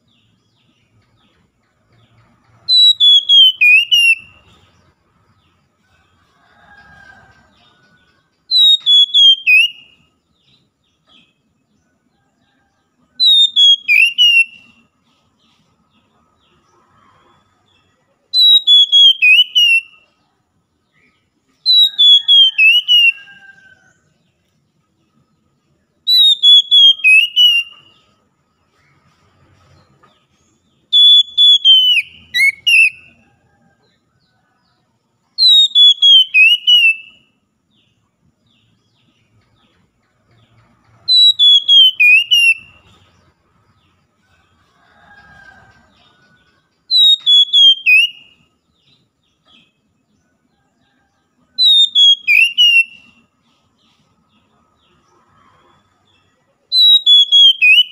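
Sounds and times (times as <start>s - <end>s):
bird singing whistled phrase: 2.7s - 4.4s, 8.5s - 9.9s, 13.2s - 14.7s, 18.4s - 20.0s, 26.1s - 27.8s, 30.9s - 33.0s, 35.4s - 37.2s, 41.1s - 42.8s, 46.9s - 48.3s, 51.6s - 53.1s, 56.8s - 57.9s.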